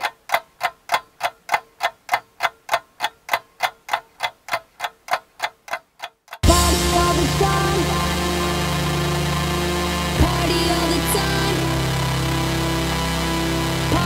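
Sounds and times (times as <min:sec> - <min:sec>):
clock ticking: 0:00.0 - 0:07.5
electronic dance music: 0:06.4 - 0:14.0.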